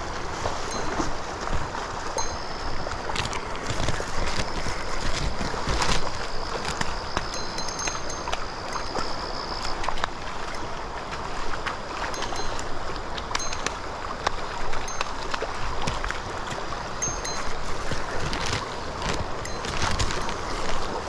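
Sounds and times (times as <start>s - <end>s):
river rushing over rocks: 0.0s - 21.0s
thin high tone: 0.6s - 3.3s, 7.3s - 9.7s, 12.1s - 14.2s, 17.0s - 21.0s.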